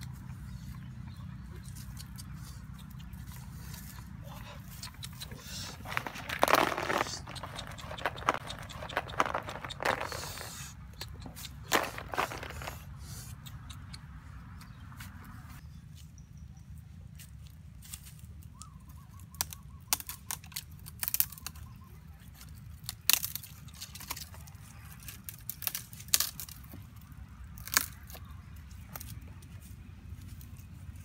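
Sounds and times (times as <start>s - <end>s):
dry twigs snapping: 19.3s - 21.7s, 22.8s - 29.2s.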